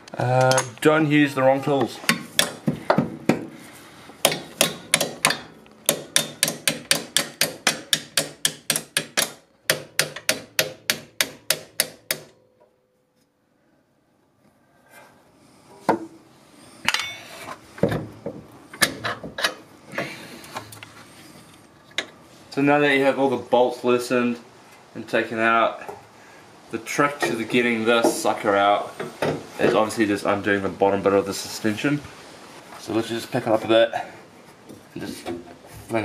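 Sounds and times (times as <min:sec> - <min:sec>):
metallic clinks: 0:16.9 - 0:17.3.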